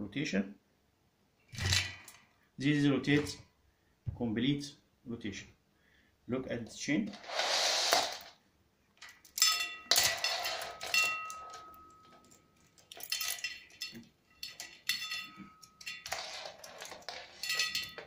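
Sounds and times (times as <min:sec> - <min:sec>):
bicycle chain and gears clinking: 0:09.4 - 0:18.0.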